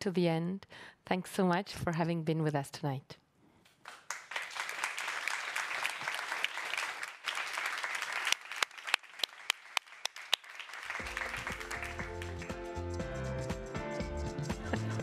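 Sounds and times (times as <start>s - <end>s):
audience applauding: 3.8s - 13.0s
music: 11.0s - 15.0s.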